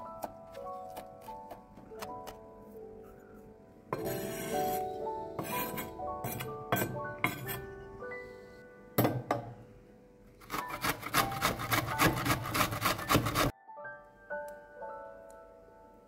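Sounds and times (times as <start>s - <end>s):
soft piano music: 0.0s - 16.0s
onion grating on metal grater: 4.0s - 6.5s, 10.4s - 13.5s.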